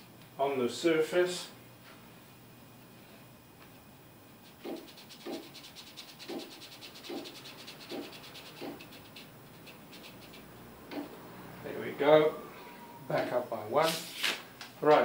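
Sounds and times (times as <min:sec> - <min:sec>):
paper rubbing on wooden surface: 0:04.4 - 0:11.1.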